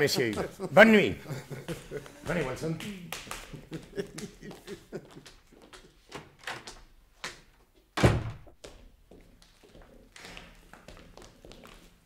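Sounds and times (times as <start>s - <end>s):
footsteps: 0.0s - 12.0s
door shutting with heavy thud: 8.0s - 8.5s.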